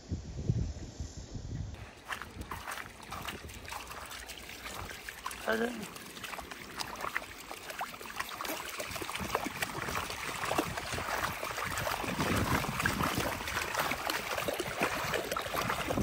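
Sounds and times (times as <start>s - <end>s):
dogs' paws splashing through water: 1.8s - 16.0s.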